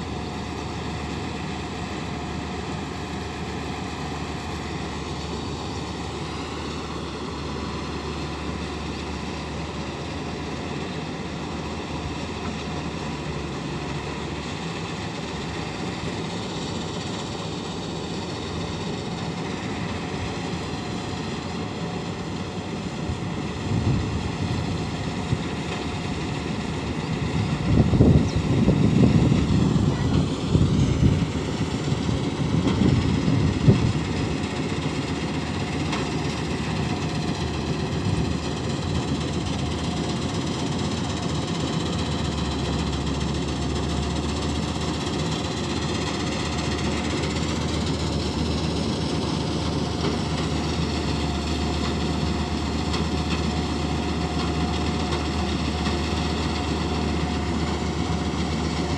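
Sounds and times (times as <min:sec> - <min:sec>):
combine harvester engine drone: 0:00.0 - 0:58.9
wind buffeting microphone: 0:23.1 - 0:25.6, 0:27.0 - 0:34.4.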